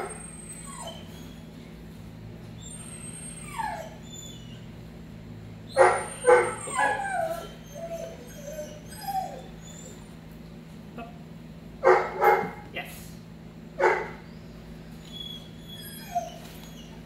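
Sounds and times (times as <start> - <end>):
puppy yipping: 0.0 - 1.5, 2.6 - 4.6, 5.7 - 10.1, 13.8 - 17.0
puppy whining: 0.0 - 1.8, 2.4 - 4.9, 5.6 - 10.4, 13.8 - 17.0.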